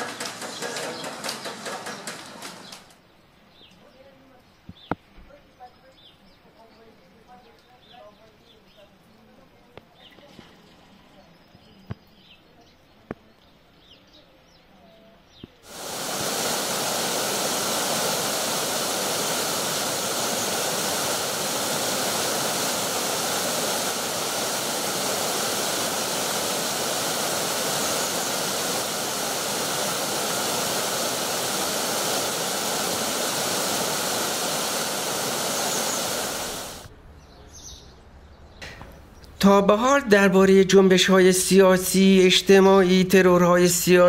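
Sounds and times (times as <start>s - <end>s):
stream rushing over rocks: 15.7s - 36.9s.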